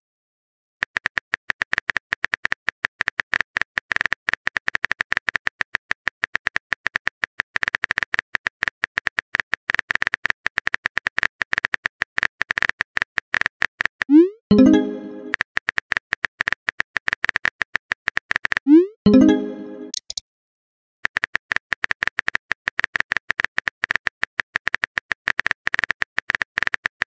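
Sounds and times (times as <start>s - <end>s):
keyboard typing clicks: 14.1s - 15.4s, 18.3s - 20.2s.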